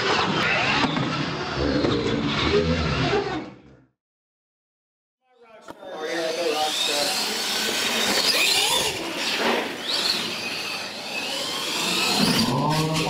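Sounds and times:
electric motor whining: 0:06.1 - 0:13.0.

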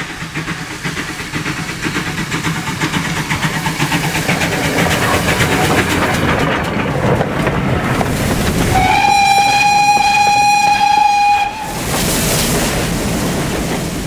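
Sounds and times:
steam locomotive exhaust beats: 0:00.0 - 0:14.0
wheels clattering on rails: 0:00.0 - 0:14.0.

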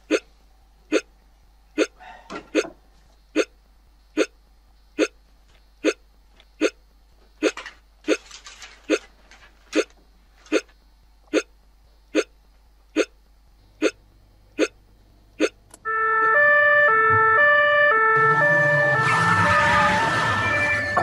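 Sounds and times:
person hiccuping: 0:00.0 - 0:01.1, 0:01.7 - 0:04.4, 0:05.0 - 0:05.2, 0:05.8 - 0:06.8, 0:07.4 - 0:08.3, 0:09.7 - 0:13.2, 0:13.8 - 0:14.0, 0:14.6 - 0:14.8, 0:15.4 - 0:15.7
two-tone siren: 0:15.8 - 0:21.0.

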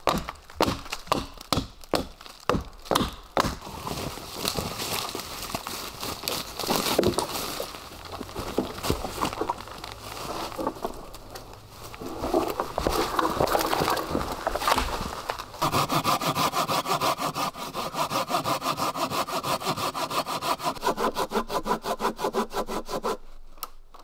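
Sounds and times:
hatchet chopping into a log: 0:00.0 - 0:03.6
footsteps crunching dry leaves: 0:03.6 - 0:15.6.

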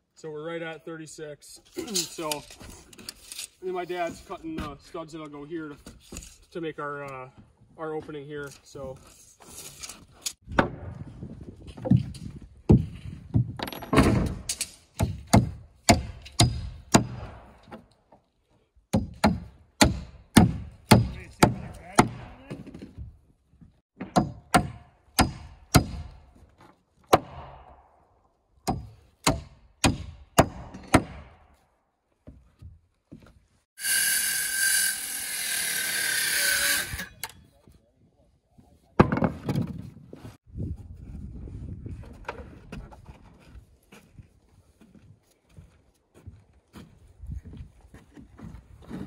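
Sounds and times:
hammer driving nails into wood: 0:18.9 - 0:22.3
circular saw cutting wood: 0:33.8 - 0:37.3.

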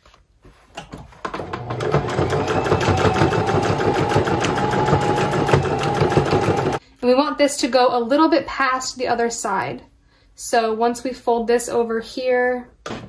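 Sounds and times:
sewing machine running: 0:01.4 - 0:06.8.

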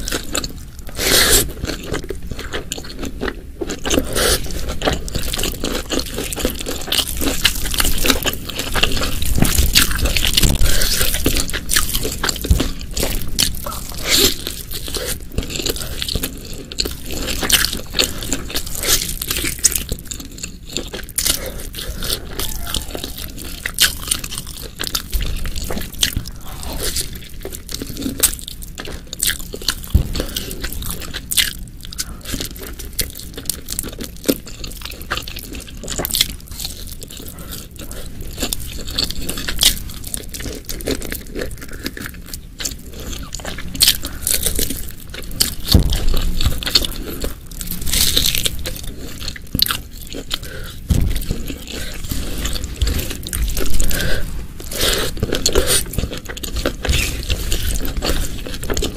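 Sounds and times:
person chewing and crunching food: 0:00.0 - 0:58.9.

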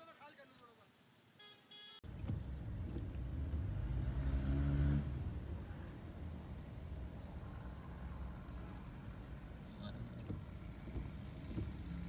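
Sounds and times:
vehicle driving past on wet road: 0:03.1 - 0:05.4.

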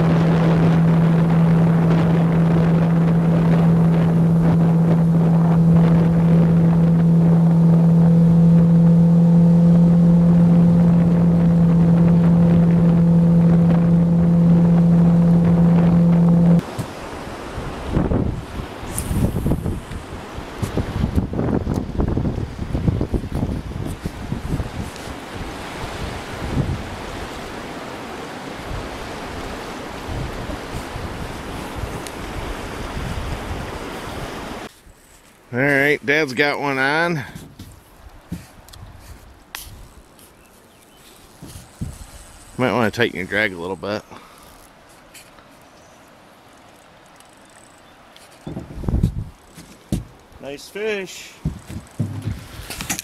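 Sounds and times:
wind noise on microphone: 0:00.0 - 0:27.7, 0:28.6 - 0:35.0, 0:37.2 - 0:40.1, 0:41.4 - 0:42.6, 0:48.4 - 0:50.2, 0:51.4 - 0:53.0
outboard motor droning: 0:00.0 - 0:34.7, 0:41.2 - 0:53.0
water rushing past boat: 0:00.0 - 0:40.2, 0:41.1 - 0:53.0.

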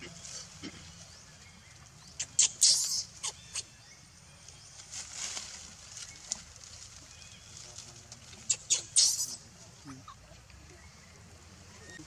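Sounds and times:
dry leaves crackling and rustling: 0:04.3 - 0:09.4.

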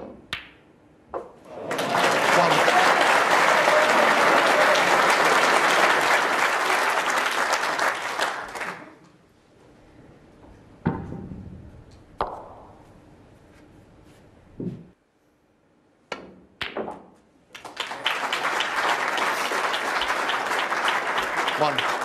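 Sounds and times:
audience applauding: 0:01.5 - 0:09.0, 0:17.6 - 0:22.0.

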